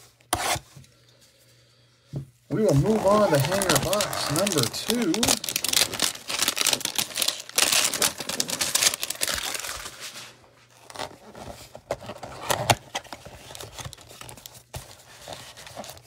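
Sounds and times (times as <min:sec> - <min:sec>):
cardboard box rustling: 0:02.6 - 0:10.2.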